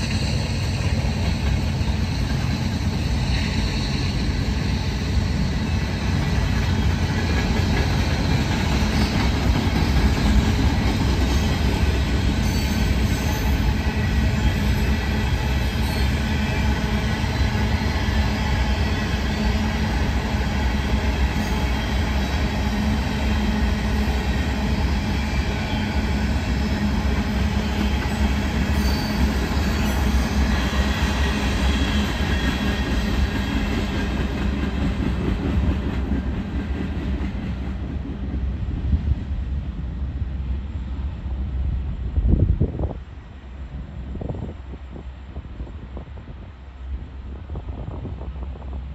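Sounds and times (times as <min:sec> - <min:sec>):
freight train wheels rolling: 0:00.0 - 0:48.9.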